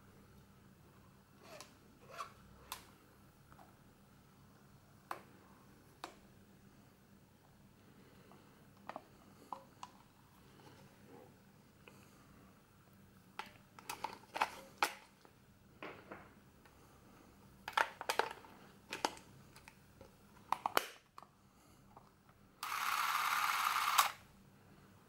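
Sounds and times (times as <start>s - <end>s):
camera motor running: 22.6s - 24.2s.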